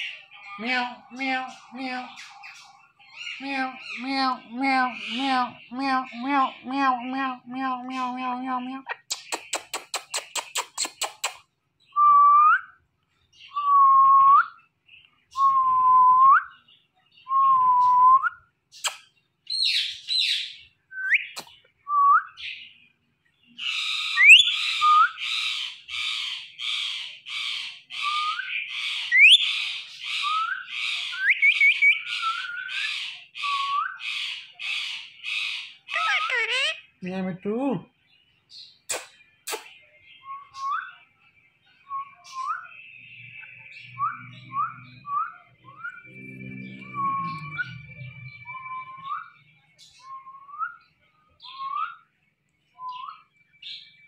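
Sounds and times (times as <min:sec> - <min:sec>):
kissing smacks: 0:09.1 - 0:11.5, 0:18.8 - 0:19.1, 0:38.9 - 0:39.7
parrot whistling: 0:29.1 - 0:29.5
whistled notes: 0:43.4 - 0:49.4, 0:50.0 - 0:50.9.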